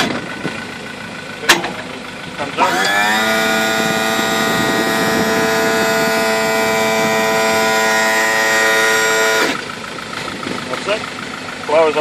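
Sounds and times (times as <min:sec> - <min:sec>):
hydraulic pump motor whining: 0:02.5 - 0:10.6.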